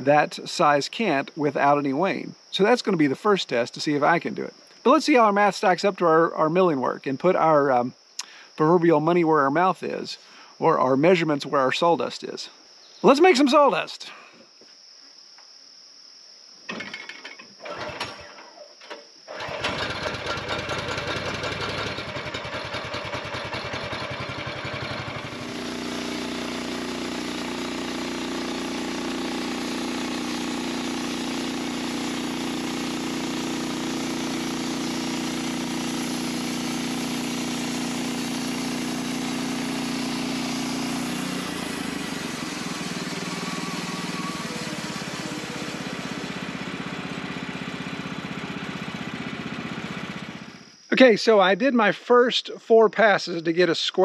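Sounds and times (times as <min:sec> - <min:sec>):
sawmill engine running: 0:17.6 - 0:18.3, 0:19.3 - 0:50.7.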